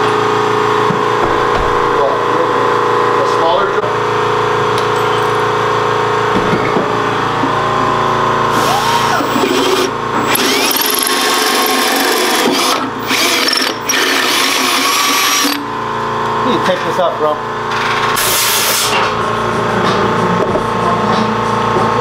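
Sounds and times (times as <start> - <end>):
electric drill boring through metal: 8.5 - 15.7.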